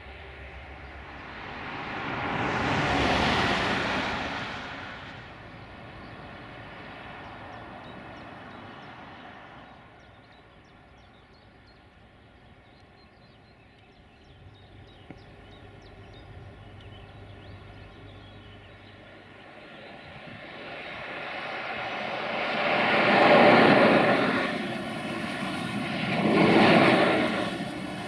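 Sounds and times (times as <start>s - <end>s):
diesel locomotive engine drone: 0.0s - 28.0s
faint birds chirping: 5.3s - 22.2s.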